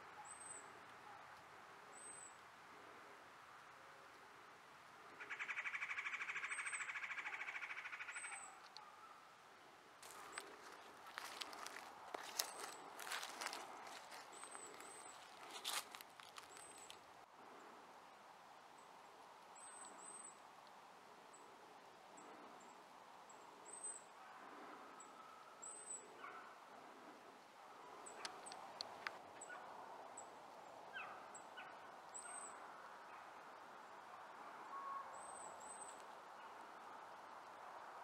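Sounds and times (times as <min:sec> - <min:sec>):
footsteps on dry leaves: 0:10.0 - 0:17.0
small birds chirping: 0:10.0 - 0:17.0, 0:27.7 - 0:29.6.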